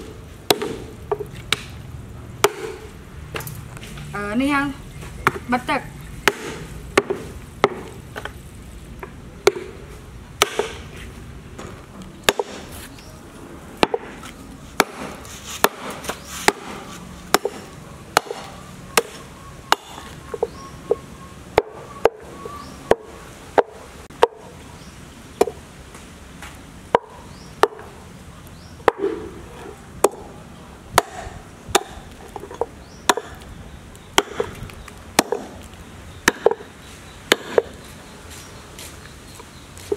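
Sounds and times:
cleaver chopping meat on wood: 0:00.5 - 0:01.7, 0:02.4 - 0:02.8, 0:06.2 - 0:08.0, 0:10.4 - 0:10.8, 0:14.8 - 0:20.1, 0:30.9 - 0:32.1, 0:34.2 - 0:35.6, 0:36.2 - 0:36.7, 0:37.3 - 0:37.7.

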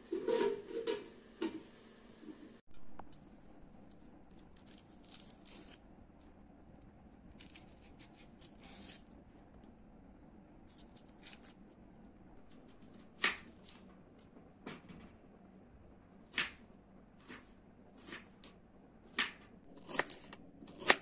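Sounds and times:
knife scraping onion skin: 0:03.9 - 0:05.8, 0:07.3 - 0:09.1, 0:10.7 - 0:11.6, 0:19.8 - 0:21.0.

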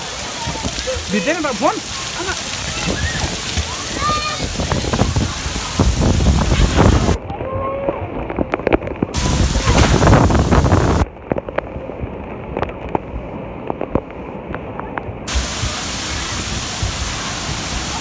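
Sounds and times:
water jets spraying: 0:00.0 - 0:07.2, 0:09.0 - 0:11.1, 0:15.3 - 0:18.0.

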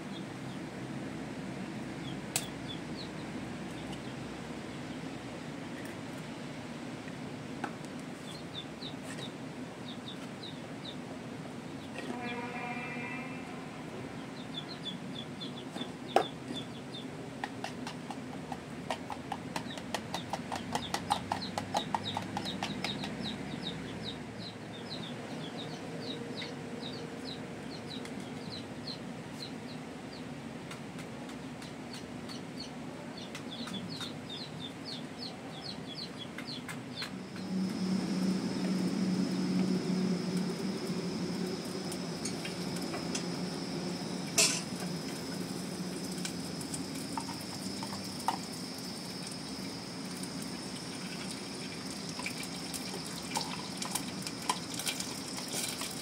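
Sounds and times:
chickens clucking and cheeping: 0:13.4 - 0:56.0
steady hum with high whine: 0:24.1 - 0:56.0.

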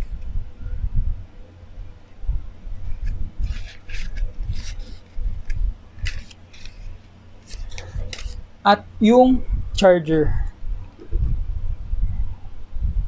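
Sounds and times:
paper envelope rustling: 0:03.4 - 0:08.4
dull low bumps: 0:10.4 - 0:13.0.

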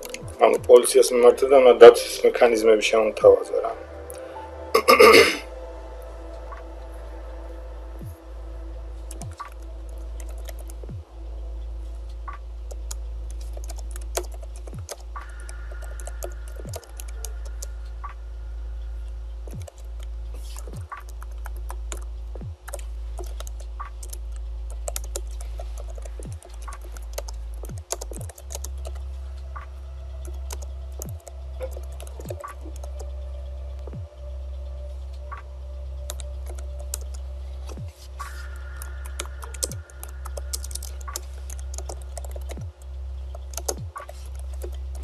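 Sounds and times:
low hum: 0:00.0 - 0:45.0
typing on computer keyboard: 0:10.2 - 0:10.9, 0:12.7 - 0:17.7, 0:19.5 - 0:29.0, 0:30.2 - 0:33.1, 0:36.1 - 0:37.8, 0:38.6 - 0:42.7, 0:43.3 - 0:45.0.

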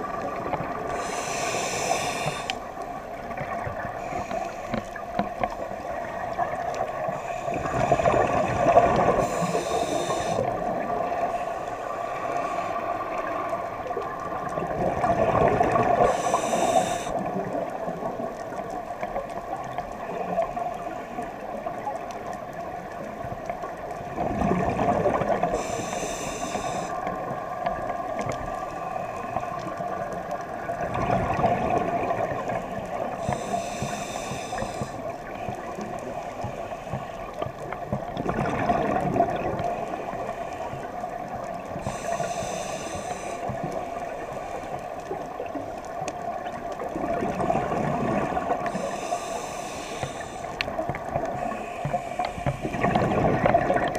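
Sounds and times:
diver breathing through regulator: 0:00.8 - 0:02.7, 0:03.9 - 0:05.2, 0:07.1 - 0:13.1, 0:15.9 - 0:17.4, 0:25.2 - 0:27.1, 0:33.1 - 0:35.2, 0:41.7 - 0:44.8, 0:48.5 - 0:53.2.

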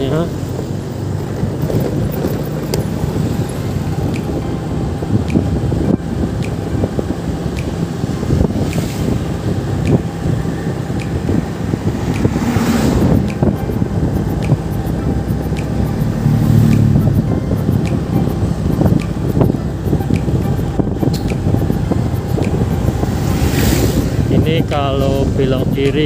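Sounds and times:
motorcycle engine hum: 0:00.0 - 0:26.0
road noise: 0:00.0 - 0:26.0
rush of noise: 0:00.0 - 0:26.0
wind buffeting microphone: 0:00.0 - 0:26.0
faint regular ticking: 0:09.8 - 0:23.7.

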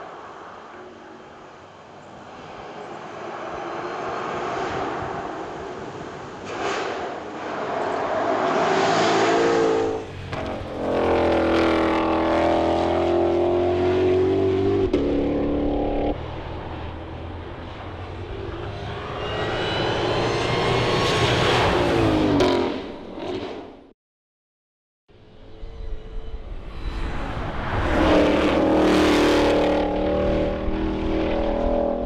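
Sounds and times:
car passing by: 0:02.2 - 0:14.8, 0:26.2 - 0:32.0
race car engine revving: 0:27.7 - 0:32.0.

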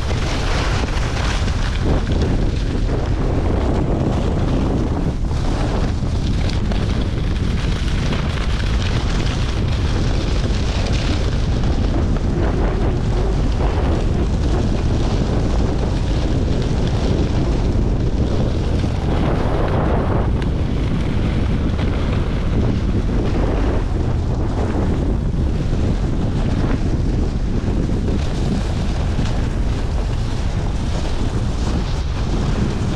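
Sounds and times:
wind buffeting microphone: 0:00.0 - 0:32.9.

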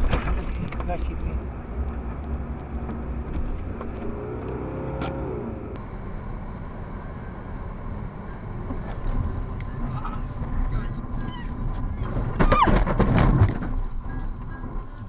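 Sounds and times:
car engine and road rumble: 0:00.0 - 0:15.0.

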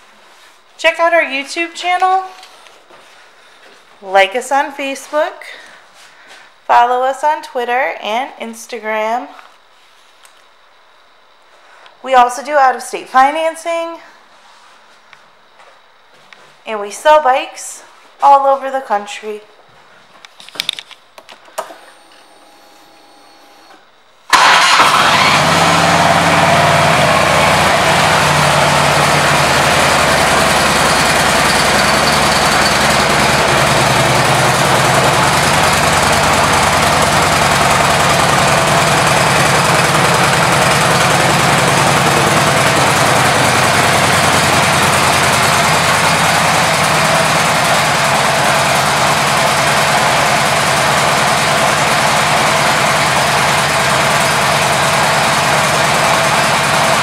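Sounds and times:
motorcycle engine starting and idling: 0:21.6 - 0:57.0.

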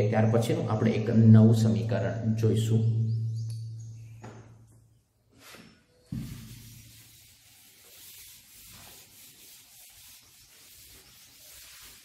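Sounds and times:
chalk scraping on chalkboard: 0:05.4 - 0:12.0
knock: 0:06.1 - 0:06.4.

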